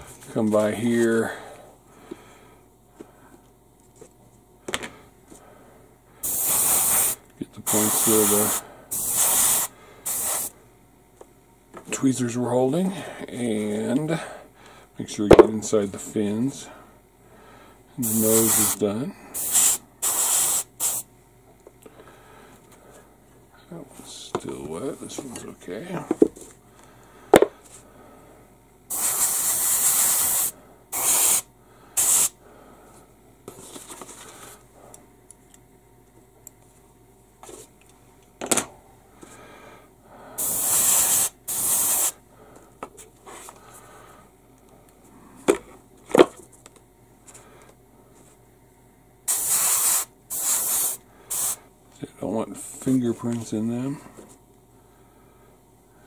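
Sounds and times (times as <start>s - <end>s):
airbrush spraying: 6.2s - 10.5s, 18.0s - 18.8s, 19.4s - 21.1s, 28.9s - 32.4s, 40.4s - 42.2s, 49.3s - 51.6s.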